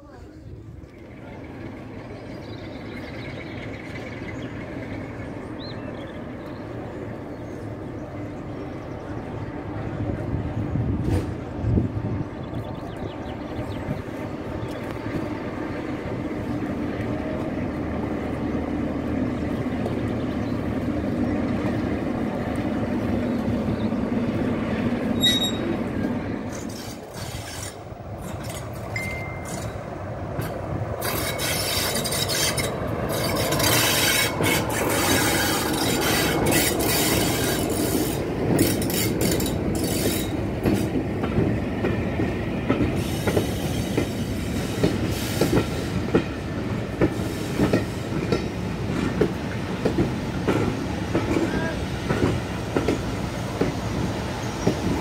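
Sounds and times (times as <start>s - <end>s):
diesel locomotive engine running: 0.2s - 55.0s
train wheels clattering over rail joints: 25.1s - 55.0s.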